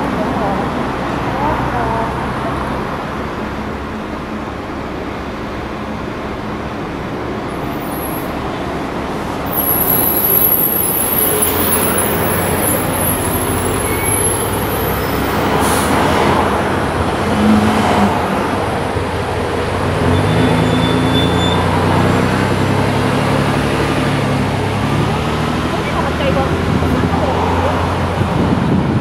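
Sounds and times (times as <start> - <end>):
road traffic noise: 0.0 - 29.0
electric tram moving off: 2.6 - 29.0
thin high whine: 9.5 - 14.5.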